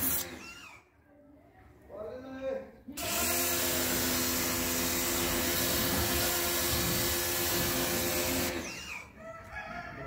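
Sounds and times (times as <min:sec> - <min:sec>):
pressure washer spraying: 0:00.0 - 0:00.5, 0:03.0 - 0:08.7.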